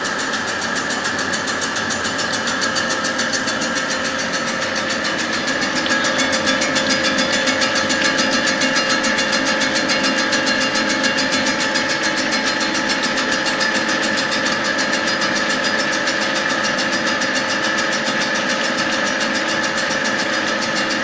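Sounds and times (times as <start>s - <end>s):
abrasive wheel grinding metal: 0.0s - 16.1s.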